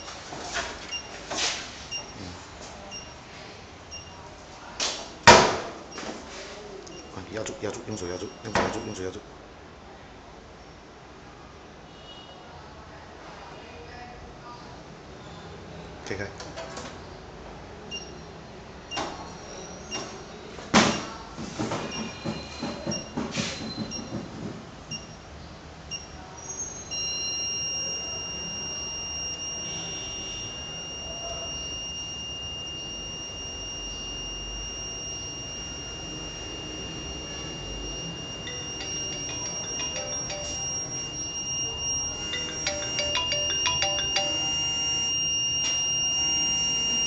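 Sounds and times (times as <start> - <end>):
short high beeps: 6.9 - 9.2, 26.9 - 47.0
high-pitched alarm tone: 7.0 - 9.2, 27.0 - 47.0
mobile phone ringtone: 27.0 - 47.0.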